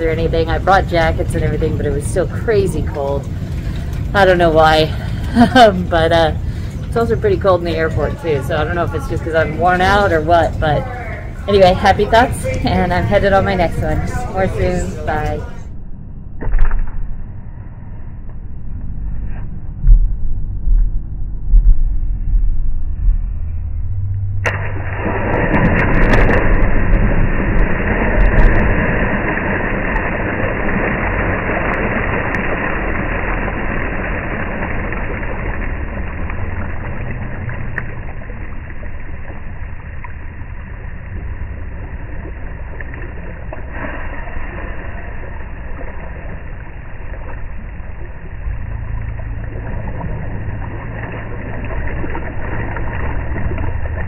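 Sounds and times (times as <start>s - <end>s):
churning water: 0.0s - 15.7s, 24.5s - 54.0s
low thumps: 18.2s - 30.9s
loud splash into pool: 24.4s - 37.4s.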